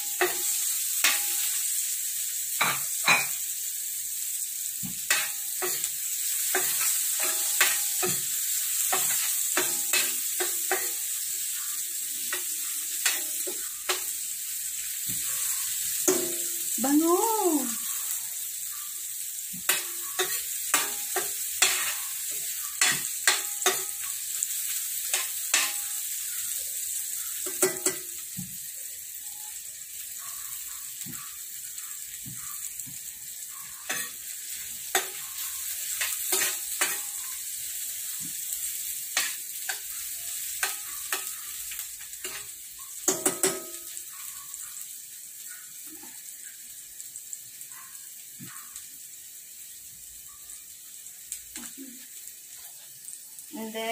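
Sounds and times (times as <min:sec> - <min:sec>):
metal spoon scraping a pan: 0:00.0 - 0:01.7, 0:04.8 - 0:14.3, 0:19.6 - 0:26.5, 0:33.6 - 0:38.1, 0:38.9 - 0:44.4
garlic and onion sizzling in oil: 0:00.0 - 0:53.9.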